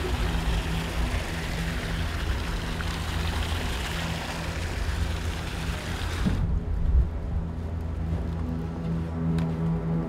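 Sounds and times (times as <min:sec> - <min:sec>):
ship engine humming: 0:00.0 - 0:06.2
water rushing along hull: 0:00.0 - 0:06.4.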